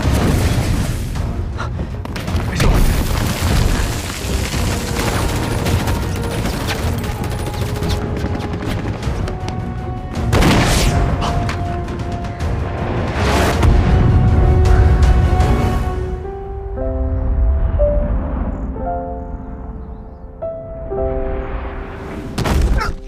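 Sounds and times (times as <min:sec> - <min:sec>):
dramatic film score music: 0:00.0 - 0:23.0
explosions: 0:10.3 - 0:11.2.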